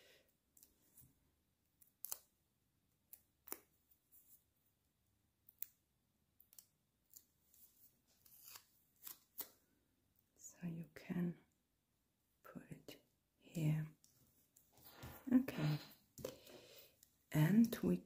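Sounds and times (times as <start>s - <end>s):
paper liner peeling crackles: 6.5s - 9.6s.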